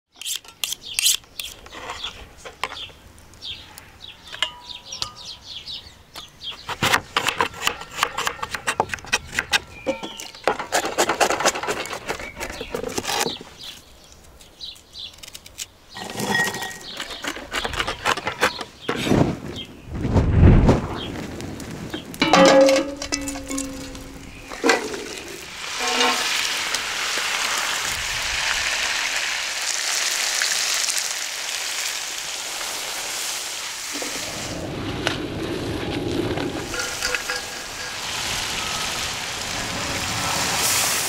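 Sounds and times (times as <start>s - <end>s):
birds chirping: 0.1s - 6.8s, 9.2s - 10.8s, 11.6s - 20.0s, 20.9s - 26.2s.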